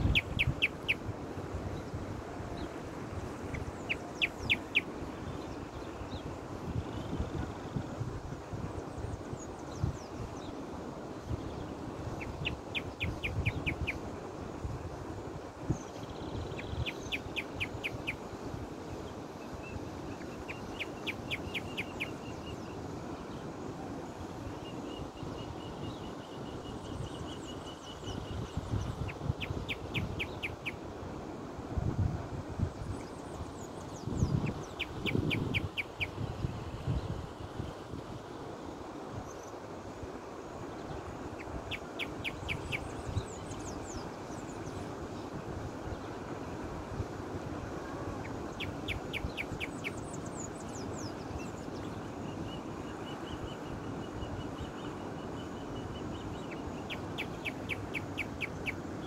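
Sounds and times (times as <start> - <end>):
bird chirping: 0.0 - 1.0, 3.5 - 6.3, 20.2 - 22.8, 24.6 - 30.8, 32.9 - 36.2, 40.8 - 44.8, 48.2 - 58.8
songbird singing: 0.0 - 31.1, 32.6 - 59.0
wind bumps on microphone: 28.1 - 30.4, 31.7 - 38.1.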